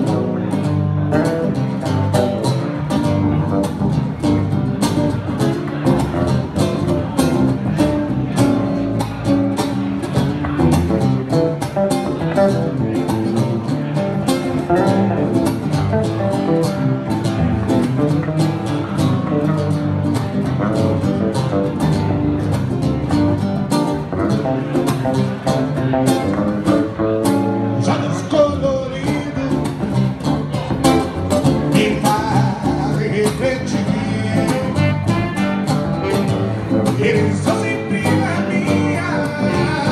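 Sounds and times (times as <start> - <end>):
electric bass: 0.0 - 39.9
strummed guitar: 0.0 - 39.9
person singing: 27.8 - 30.2, 31.6 - 39.9
saxophone: 33.9 - 37.4, 39.3 - 39.9.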